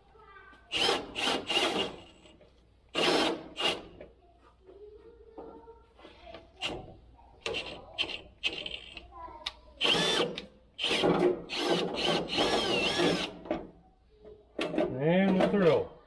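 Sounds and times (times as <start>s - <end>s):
drill drilling into sheet metal: 0.7s - 2.3s, 2.9s - 3.9s, 9.8s - 13.4s.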